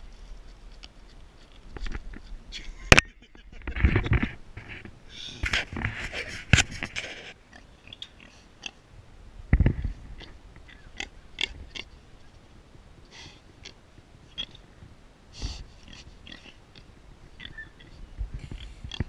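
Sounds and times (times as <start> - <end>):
boar sniffing and breathing: 13.1 - 13.6, 15.3 - 16.6.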